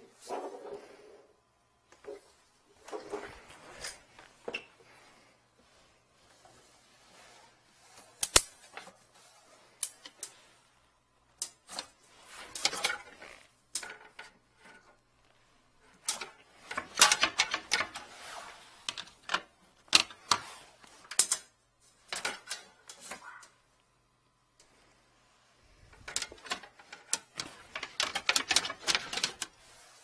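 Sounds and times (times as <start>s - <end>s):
equipment clicking and rattling: 25.8s - 29.5s.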